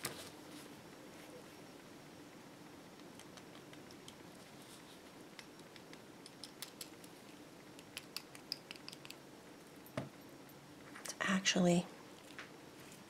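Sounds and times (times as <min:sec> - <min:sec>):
beads clicking together: 0:05.4 - 0:09.2.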